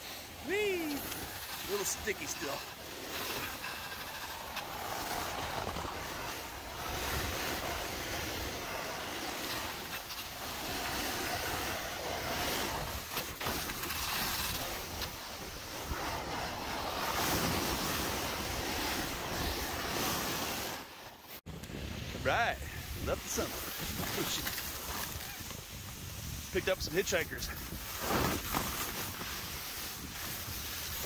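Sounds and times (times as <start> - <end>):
board hissing on snow: 0.0 - 31.0
wind noise on microphone: 21.6 - 31.0.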